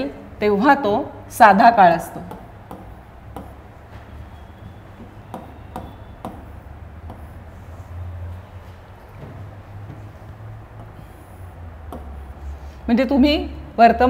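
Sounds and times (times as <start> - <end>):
stylus tapping on glass screen: 2.2 - 3.6, 5.3 - 7.3.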